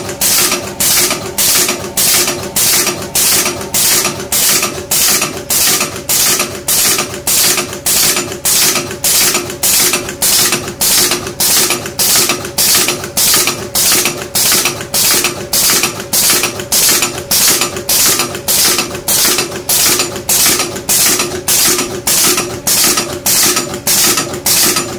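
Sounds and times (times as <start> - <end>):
press machine metallic clacks: 0.0 - 24.9
steady machine hum: 0.0 - 24.9.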